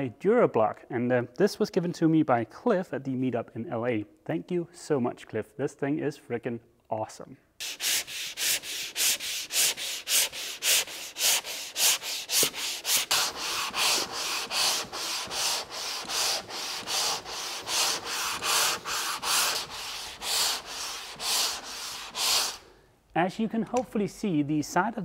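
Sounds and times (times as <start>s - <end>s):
sanding block scratching strokes: 7.6s - 22.7s.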